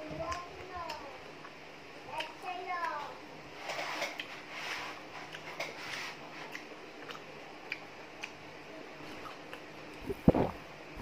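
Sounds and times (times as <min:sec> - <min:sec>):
mouth chewing clicks and smacks: 0:06.5 - 0:08.4.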